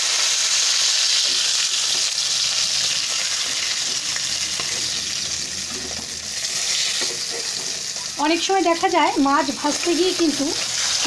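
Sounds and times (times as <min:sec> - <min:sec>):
fish frying in hot oil: 0:00.0 - 0:11.0
spatula scraping and tapping: 0:05.7 - 0:08.1.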